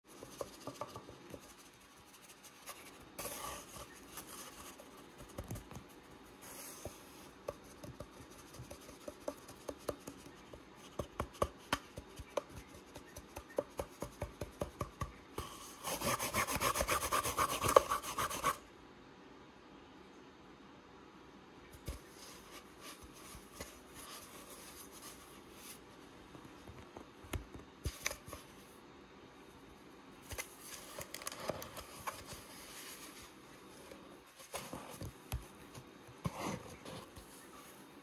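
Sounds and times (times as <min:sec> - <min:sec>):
scratching on cardboard: 0:00.1 - 0:14.7, 0:15.4 - 0:18.6, 0:30.3 - 0:37.8
taps and clicks on cardboard tube: 0:07.4 - 0:15.2.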